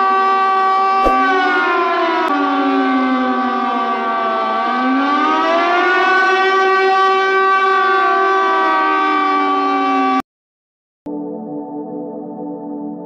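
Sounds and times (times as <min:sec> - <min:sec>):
warning siren wailing: 0:00.0 - 0:10.2.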